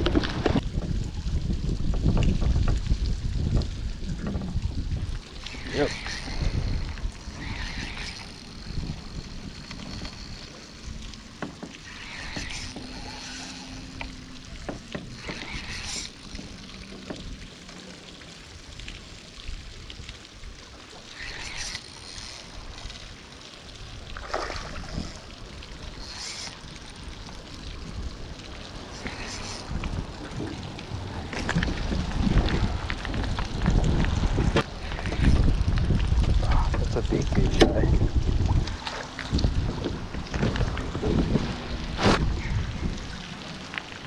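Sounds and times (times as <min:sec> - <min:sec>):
wind rumbling on microphone: 0:00.0 - 0:17.6, 0:18.5 - 0:44.0
hissing rustles: 0:05.2 - 0:17.0, 0:21.0 - 0:23.4, 0:24.9 - 0:32.8.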